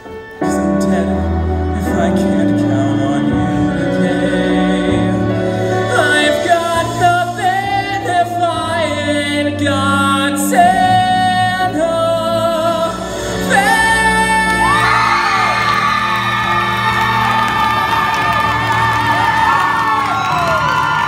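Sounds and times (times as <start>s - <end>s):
man singing into microphone: 0.4s - 16.2s
audience cheering and whooping: 14.3s - 21.0s.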